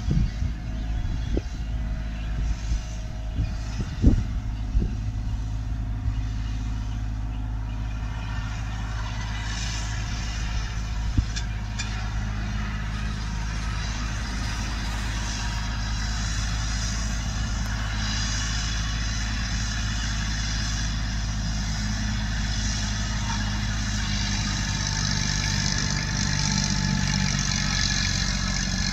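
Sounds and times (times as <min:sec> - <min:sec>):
tractor diesel engine driving past: 0:00.0 - 0:28.9.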